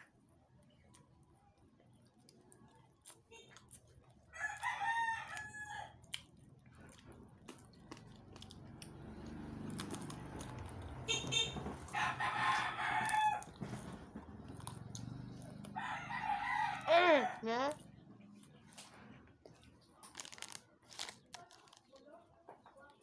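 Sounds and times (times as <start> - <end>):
rooster crowing: 4.3 - 6.0, 11.9 - 13.6, 15.7 - 17.5.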